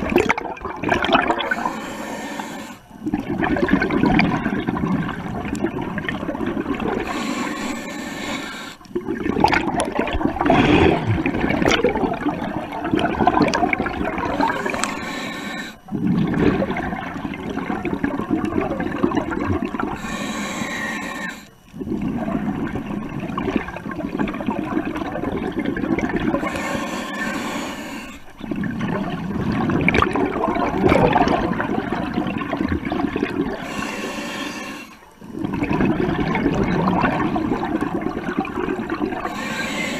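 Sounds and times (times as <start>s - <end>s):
exhaled air bubbling: 0.0s - 39.9s
regulator inhale hiss: 1.4s - 3.0s, 6.8s - 8.9s, 14.2s - 16.0s, 19.8s - 21.6s, 26.3s - 28.4s, 33.5s - 35.2s, 39.2s - 39.9s.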